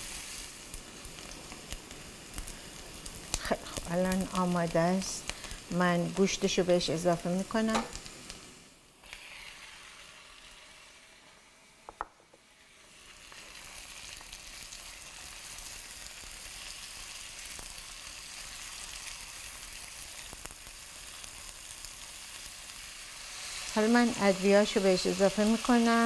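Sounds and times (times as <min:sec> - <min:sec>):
food sizzling in a pan: 0:00.0 - 0:26.0.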